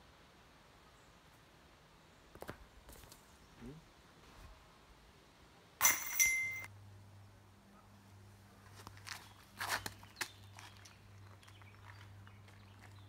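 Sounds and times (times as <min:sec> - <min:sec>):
disc crashing into metal chains: 0:05.8 - 0:06.7
footstep scuffs and clicks: 0:08.6 - 0:13.0.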